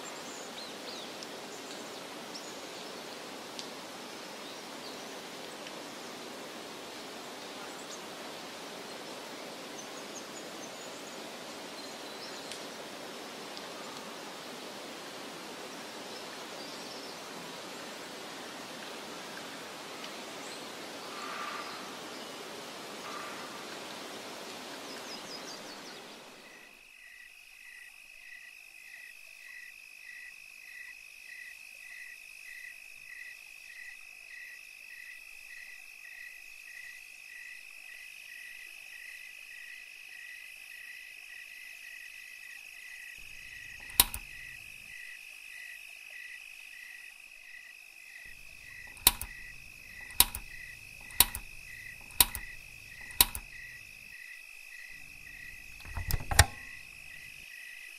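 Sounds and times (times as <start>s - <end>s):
crickets chirping: 26.2s - 57.9s
loud sharp clicks: 43.3s - 44.6s, 48.3s - 53.8s, 55.2s - 57.3s.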